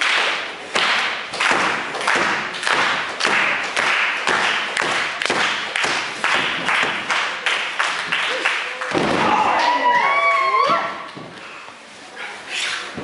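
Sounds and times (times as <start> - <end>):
audience clapping in unison: 0.0 - 9.0.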